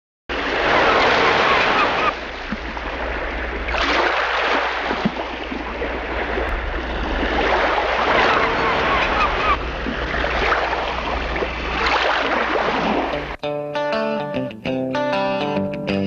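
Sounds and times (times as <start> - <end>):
sea waves rushing and splashing: 0.3 - 13.4.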